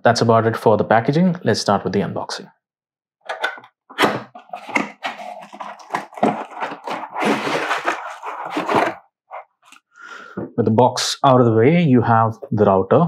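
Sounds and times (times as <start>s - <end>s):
cardboard and plastic crackling: 4.0s - 9.0s.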